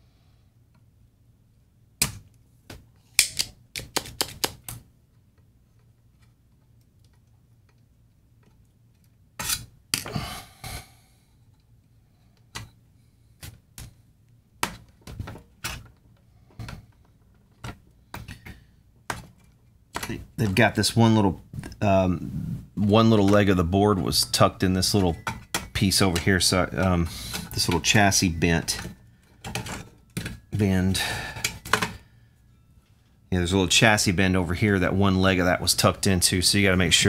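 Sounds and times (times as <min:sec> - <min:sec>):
tools clicking on sheet metal: 0:03.2 - 0:04.8.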